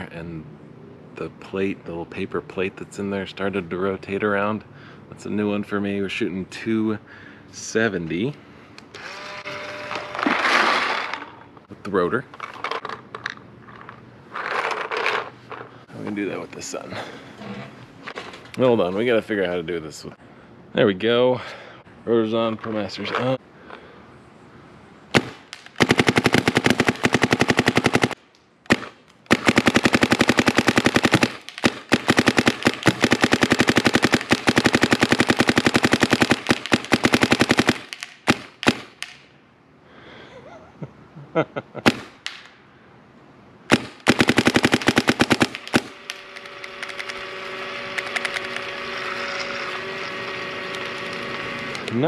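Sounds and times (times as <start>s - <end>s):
paintball marker firing rapid shots: 25.1s - 39.2s, 41.9s - 42.1s, 43.7s - 46.2s.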